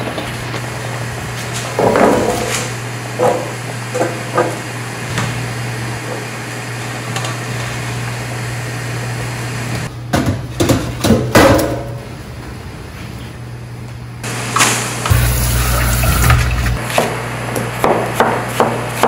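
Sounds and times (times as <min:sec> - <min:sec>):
steady low hum: 0:12.0 - 0:17.5.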